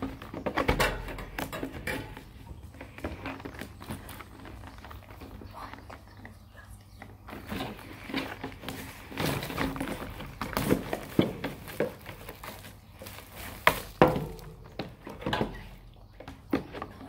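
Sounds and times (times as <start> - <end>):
plastic wrap crackling: 7.4 - 14.8.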